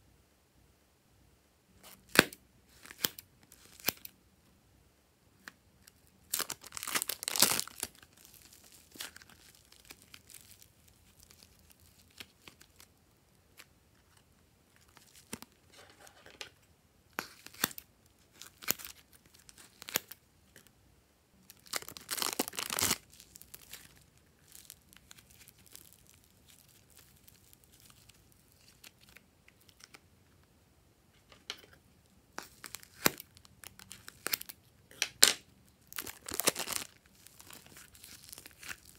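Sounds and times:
plastic wrappers crinkling and tearing: 6.2s - 12.9s, 14.8s - 16.2s, 17.2s - 20.7s, 21.5s - 30.0s, 32.4s - 34.6s, 35.7s - 38.9s.

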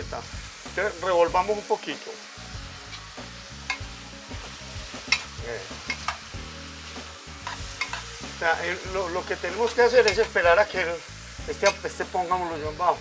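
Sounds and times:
food sizzling in frying pan: 0.0s - 13.0s
utensil clicking against pan: 3.7s - 3.9s, 5.0s - 6.2s, 7.4s - 8.0s.

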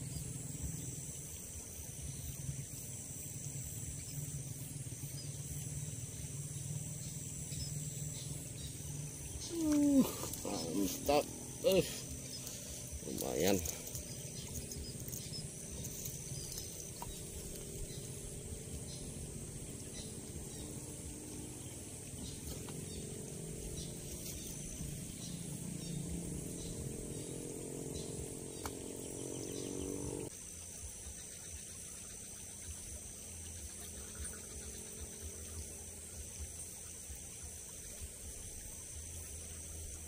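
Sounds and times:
low tonal drone: 0.0s - 30.3s
insects chirring: 0.0s - 40.0s.

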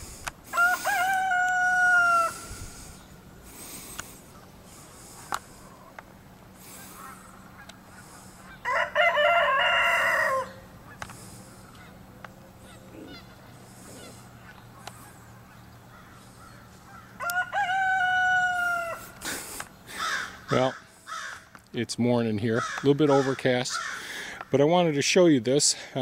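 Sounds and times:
rooster crowing: 0.5s - 2.8s, 8.4s - 10.7s, 16.9s - 19.2s.

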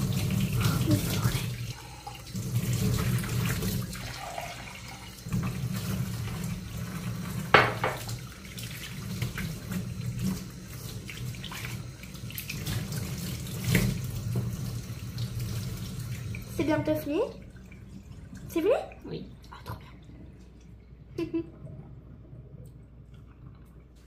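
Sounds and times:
tap running into sink: 7.4s - 8.2s.

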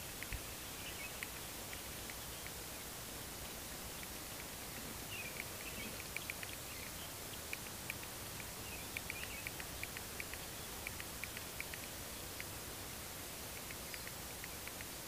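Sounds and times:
steady hiss: 0.0s - 15.0s
small animal chirping: 5.1s - 12.5s.

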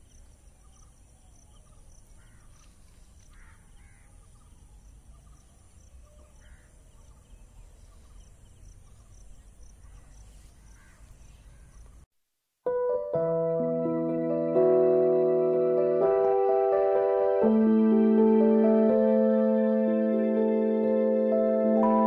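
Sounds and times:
insects chirring: 0.0s - 12.0s
birds cawing: 2.2s - 2.6s, 3.2s - 4.3s, 6.2s - 6.8s, 9.8s - 11.7s
soft piano note: 21.7s - 22.0s.

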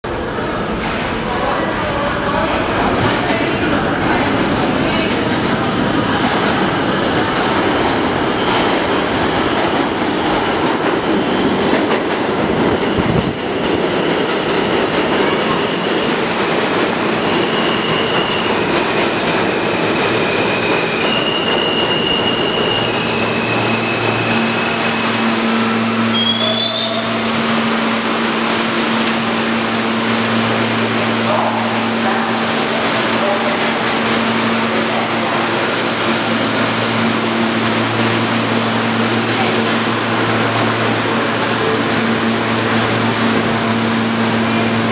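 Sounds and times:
standing train humming: 0.0s - 44.9s
subway train rumbling: 0.0s - 44.9s
train brakes squealing: 17.1s - 18.8s, 19.4s - 27.4s.

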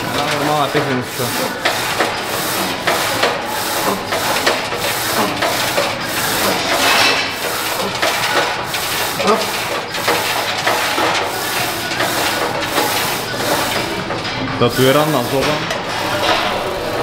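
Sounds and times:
steady knocking beat: 0.0s - 17.0s.

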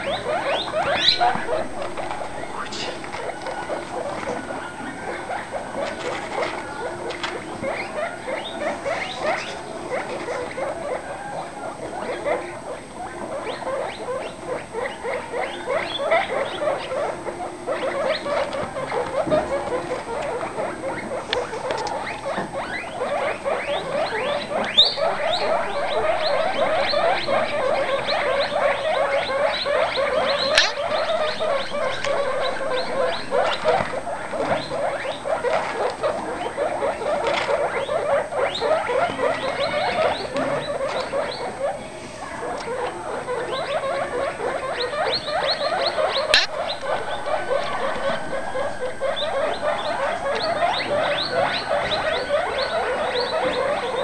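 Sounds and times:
baby guinea pigs squeaking: 0.0s - 54.0s
sharp clicks: 46.3s - 46.9s.

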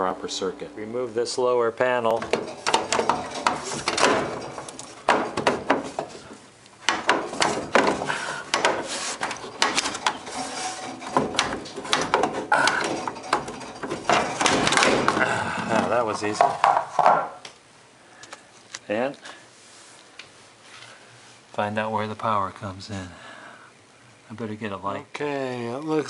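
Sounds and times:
metal panel knocking and rattling: 2.1s - 17.1s.

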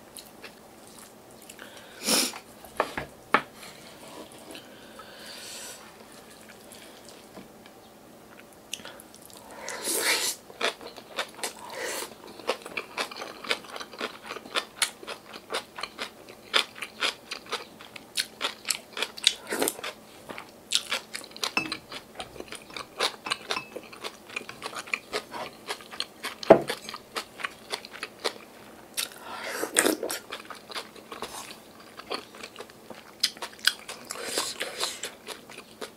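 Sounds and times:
chewing crisp food: 0.0s - 1.8s, 10.5s - 35.9s.

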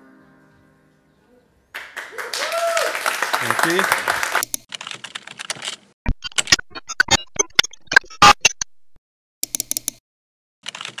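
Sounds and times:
digital glitch clicks and stutters: 6.0s - 9.0s.

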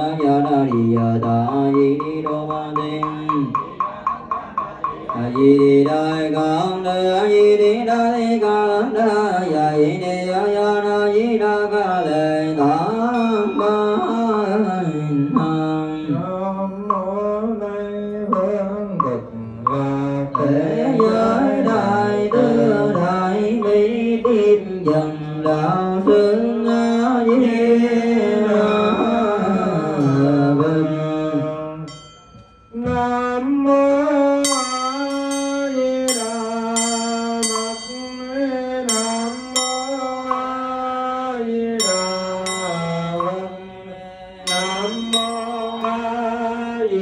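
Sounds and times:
devotional chant with instruments: 0.0s - 47.0s
steady held tone: 12.0s - 47.0s
bell-like strikes: 12.5s - 16.0s, 28.4s - 31.1s, 31.8s - 33.4s, 34.4s - 41.2s, 41.8s - 43.6s, 44.5s - 47.0s.

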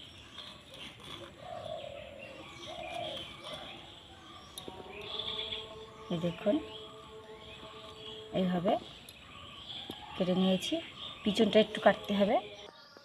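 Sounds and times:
small birds chirping: 0.0s - 13.0s
dove cooing: 1.1s - 4.4s.

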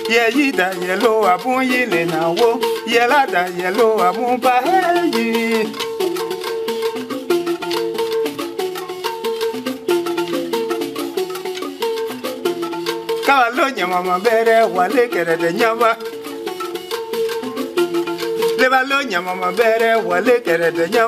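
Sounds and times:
man singing: 0.0s - 6.3s, 13.2s - 16.2s, 18.5s - 21.0s
pitched instrument playing phrases: 0.0s - 21.0s
shaken rattle: 0.0s - 21.0s.

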